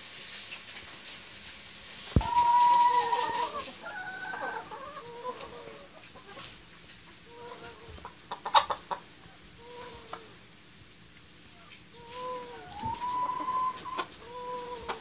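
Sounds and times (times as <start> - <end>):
hens clucking: 2.1 - 10.5, 11.6 - 15.0.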